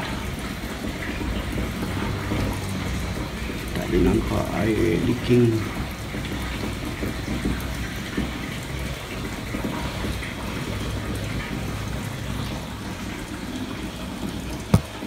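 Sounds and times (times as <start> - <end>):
water running into tank: 0.0 - 15.0.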